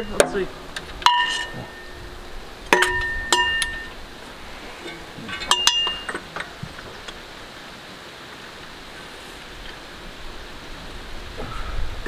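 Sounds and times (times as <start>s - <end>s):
metal tools clinking: 1.0s - 2.0s, 2.7s - 4.0s, 4.8s - 7.2s.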